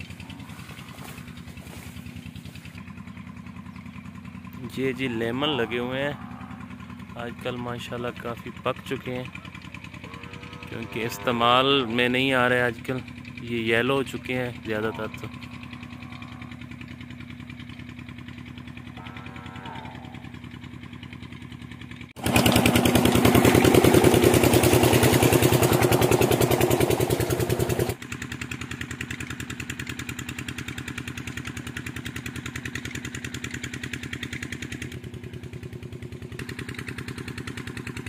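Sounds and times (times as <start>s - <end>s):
pump engine throbbing: 0.0s - 38.0s
water gushing from pipe: 22.2s - 27.8s.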